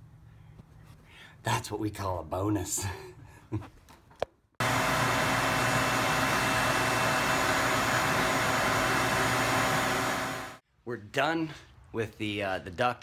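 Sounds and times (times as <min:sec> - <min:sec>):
vacuum cleaner running: 0:04.6 - 0:10.6.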